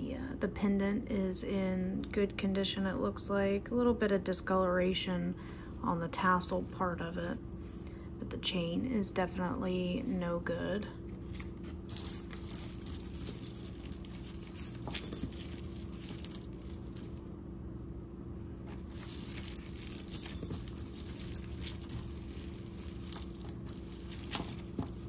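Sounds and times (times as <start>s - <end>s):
metal jewelry jangling: 10.5s - 17.2s, 18.6s - 25.0s.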